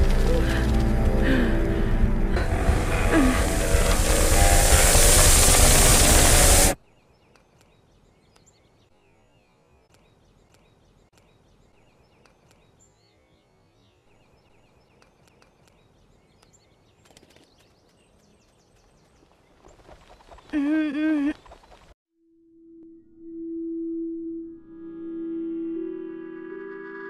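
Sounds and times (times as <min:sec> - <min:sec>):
loud rushing whoosh: 0:02.4 - 0:06.8
faint cartoon birdsong: 0:06.8 - 0:21.9.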